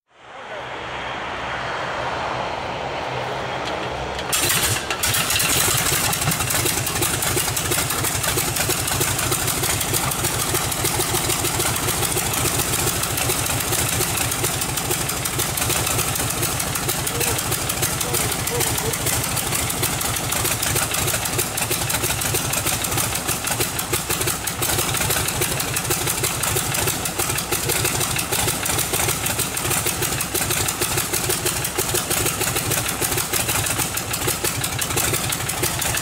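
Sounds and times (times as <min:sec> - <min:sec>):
radial engine running: 0:00.2 - 0:36.0
engine starter whirring: 0:03.6 - 0:25.6.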